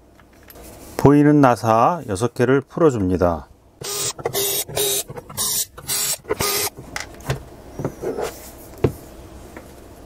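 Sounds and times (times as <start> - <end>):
electric screwdriver whirring: 3.8 - 6.8.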